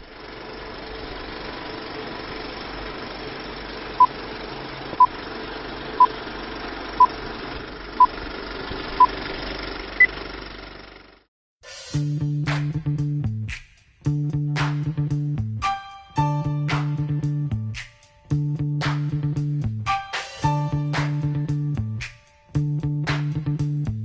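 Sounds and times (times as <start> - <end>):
film projector whirring: 0.0 - 10.7.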